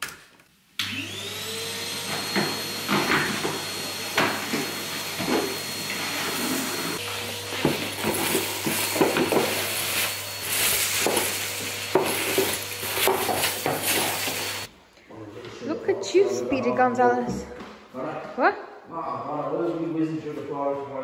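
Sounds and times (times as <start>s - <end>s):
vacuum cleaner humming: 0.8s - 14.7s
debris rattling in hose: 7.7s - 14.7s.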